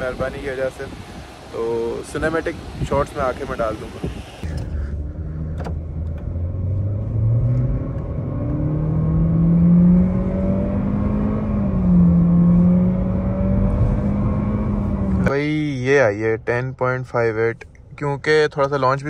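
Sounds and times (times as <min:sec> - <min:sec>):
car engine accelerating: 0:04.4 - 0:15.4.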